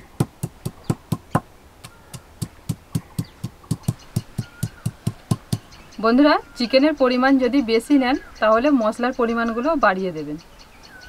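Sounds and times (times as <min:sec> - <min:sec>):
stone pestle knocking on slab: 0:00.2 - 0:05.7.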